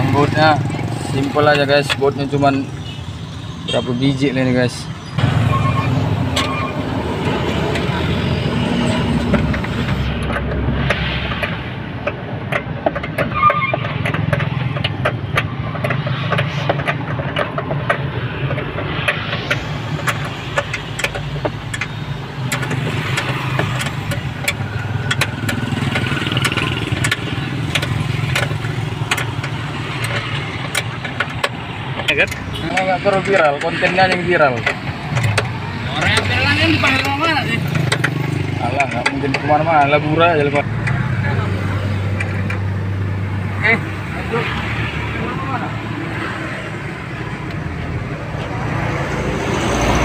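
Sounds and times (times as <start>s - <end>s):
vehicle engine droning: 0.0s - 50.0s
metallic clicks of hand tools: 13.9s - 42.7s.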